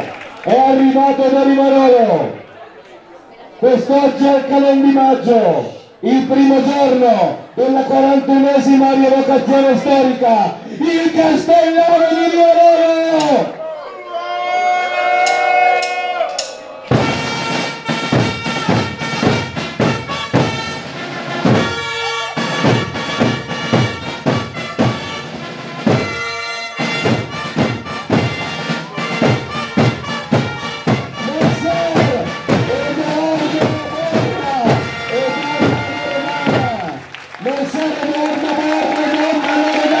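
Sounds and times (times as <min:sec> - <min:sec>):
wind band tune: 0:14.3 - 0:40.0
steady drumbeat: 0:15.2 - 0:40.0
voices: 0:30.9 - 0:40.0.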